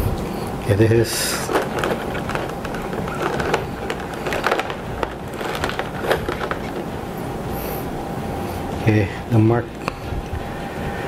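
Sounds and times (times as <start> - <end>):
plastic packaging crackling and clicking: 1.2 - 7.0.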